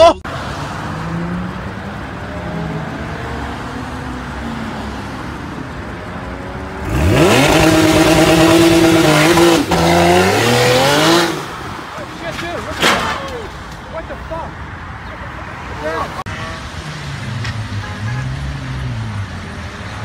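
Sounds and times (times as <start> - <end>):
car engine revving: 0.3 - 12.0.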